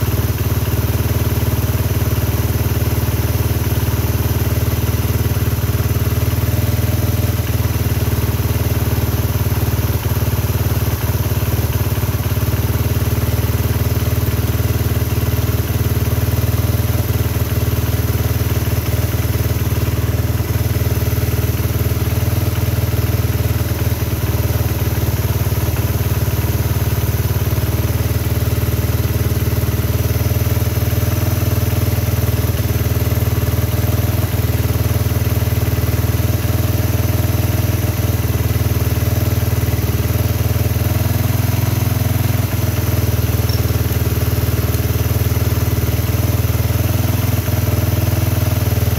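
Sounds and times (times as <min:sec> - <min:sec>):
motorcycle engine idling: 0:00.0 - 0:48.9.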